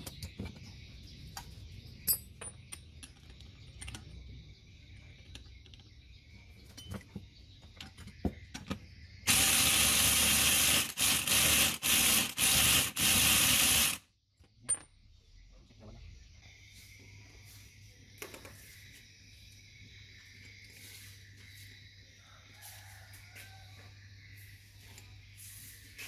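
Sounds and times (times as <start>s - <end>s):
compressed-air tool hissing: 9.3s - 14.0s.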